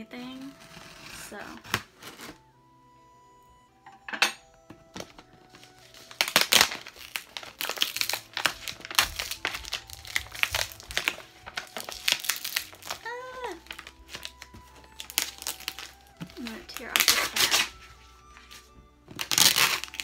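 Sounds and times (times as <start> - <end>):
paper crinkling and tearing: 0.1 - 2.4, 4.9 - 20.0.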